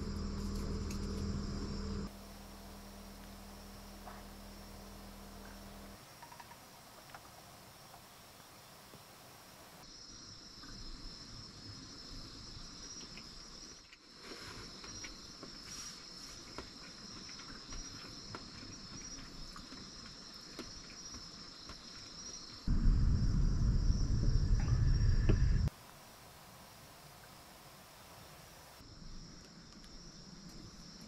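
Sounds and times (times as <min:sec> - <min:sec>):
insects chirring: 0:00.0 - 0:31.0
loud low rumble: 0:22.7 - 0:25.7.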